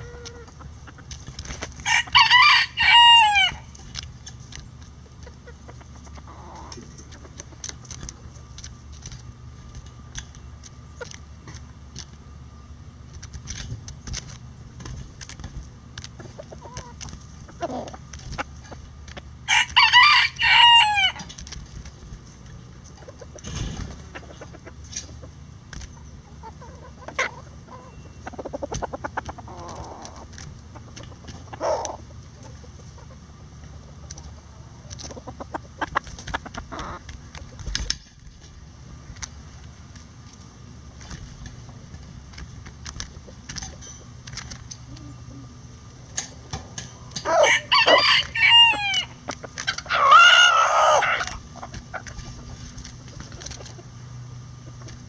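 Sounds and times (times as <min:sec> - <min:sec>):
hens clucking: 0:00.0 - 0:09.3, 0:14.2 - 0:38.4, 0:39.2 - 0:55.0
rooster crowing: 0:01.8 - 0:03.7, 0:19.4 - 0:21.3, 0:47.2 - 0:49.2, 0:49.8 - 0:51.4
beaks pecking: 0:13.1 - 0:38.4.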